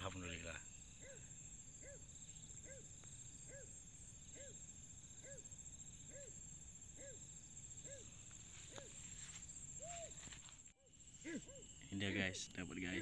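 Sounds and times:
high insect trill: 0.0 - 13.0
low animal call: 11.2 - 11.9.

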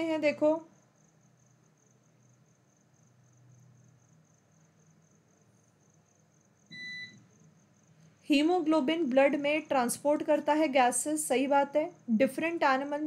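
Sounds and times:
short electronic beep: 6.7 - 7.2.

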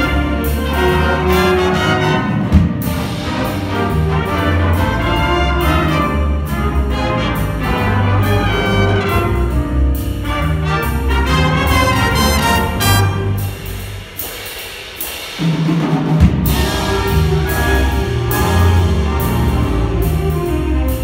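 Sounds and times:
jazz big band playing: 0.0 - 21.0
sharp drum accent: 11.2 - 20.0.

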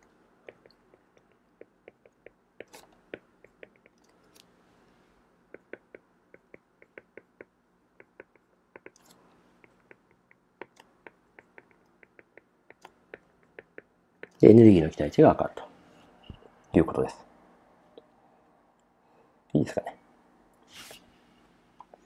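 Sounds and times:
stylus ticking on tablet screen: 0.4 - 4.1, 5.5 - 14.4
soft hisses: 20.6 - 22.0.

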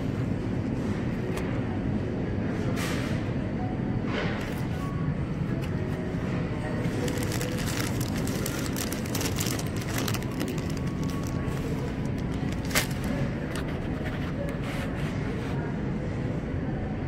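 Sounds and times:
supermarket hum: 0.0 - 17.0
plastic bag crinkling: 6.8 - 13.5.

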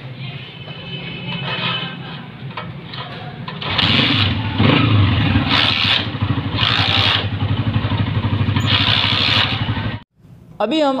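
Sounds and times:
motorcycle engine kick-started: 3.6 - 10.0.

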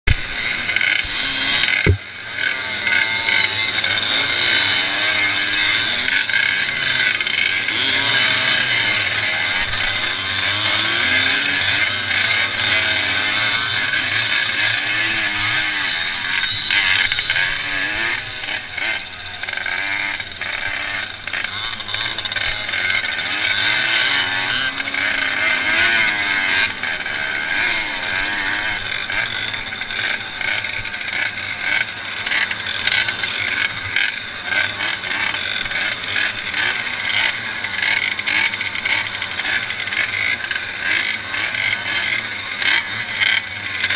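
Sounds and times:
moped engines idling and revving: 0.0 - 43.9.

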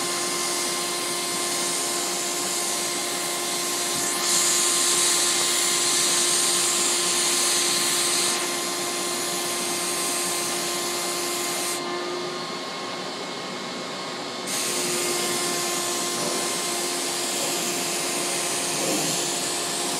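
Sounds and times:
turbine whining: 0.0 - 19.9
spray gun air hiss: 3.5 - 8.6, 14.5 - 19.9.

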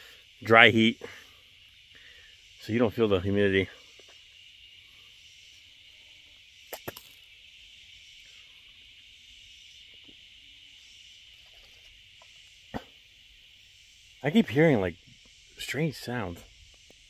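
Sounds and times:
insects buzzing: 0.0 - 17.0
bite valve clicks: 6.7 - 7.2.

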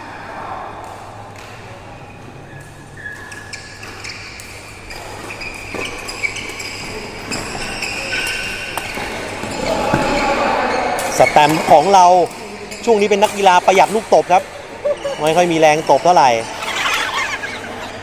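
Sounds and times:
shoes squeaking on court: 1.4 - 18.0
rackets hitting shuttlecock: 2.5 - 14.4.

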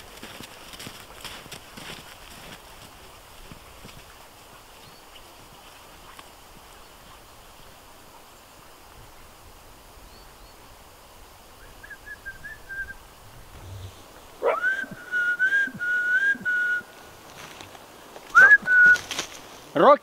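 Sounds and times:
person whistling: 14.5 - 16.8, 18.3 - 19.1.

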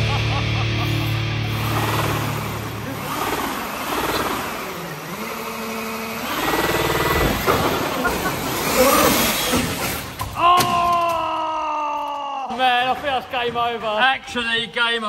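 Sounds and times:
rc truck engine revving: 0.8 - 10.4.

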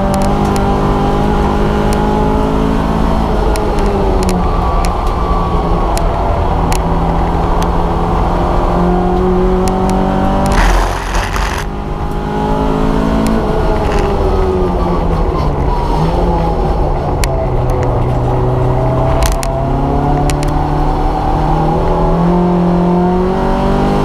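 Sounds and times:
car engine revving: 6.4 - 15.3.

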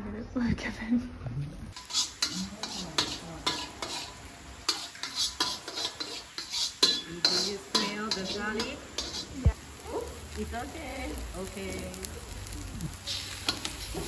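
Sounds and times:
metal spatula scraping a wok: 1.7 - 9.5, 13.0 - 14.0
frying sizzle: 1.7 - 14.0.

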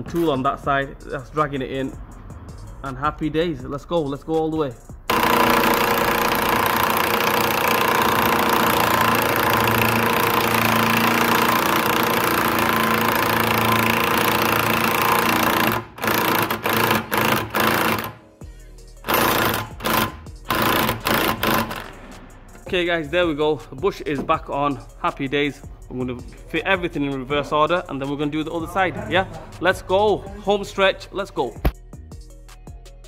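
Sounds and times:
impact wrench hammering: 5.1 - 18.2, 19.0 - 22.0.

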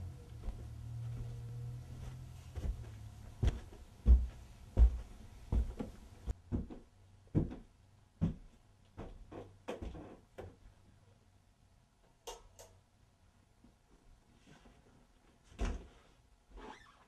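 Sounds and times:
low hum: 0.0 - 6.3
footsteps going up stairs: 0.0 - 10.6.

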